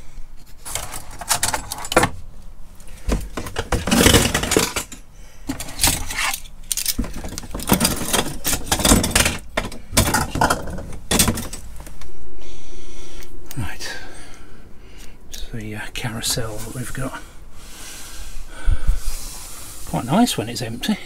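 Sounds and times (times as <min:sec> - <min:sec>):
metal pots and pans clattering: 0:03.2 - 0:06.3, 0:07.0 - 0:11.6.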